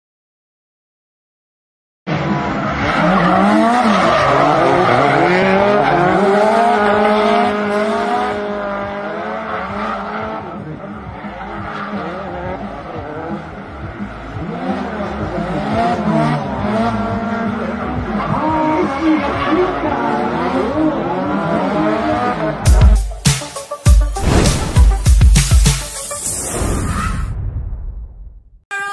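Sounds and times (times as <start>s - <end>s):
car engines revving: 2.1s - 23.0s.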